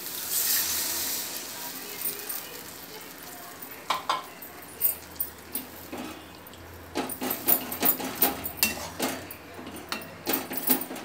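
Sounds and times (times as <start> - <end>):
spoon clinking and scraping a pot: 3.6 - 11.0.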